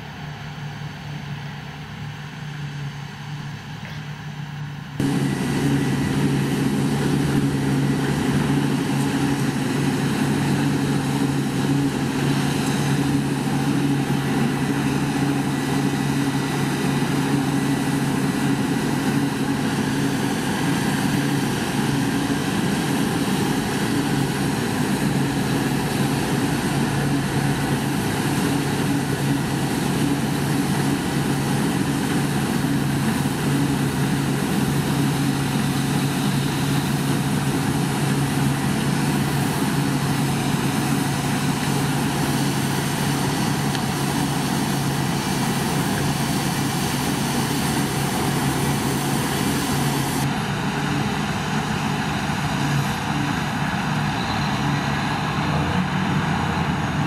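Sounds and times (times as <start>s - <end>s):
mechanical hum two-note drone: 0.0s - 20.1s.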